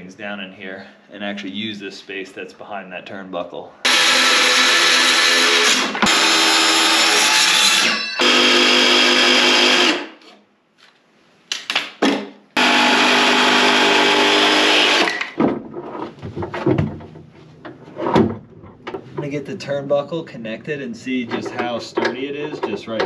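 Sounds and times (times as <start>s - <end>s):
circular saw cutting wood: 3.8s - 10.2s, 12.6s - 15.2s
wooden knocks: 15.2s - 19.3s.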